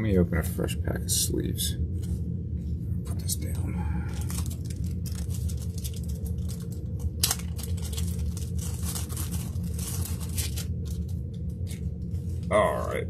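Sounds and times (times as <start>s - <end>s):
steady low hum: 0.0s - 13.0s
plastic wrap crinkling: 4.1s - 12.4s.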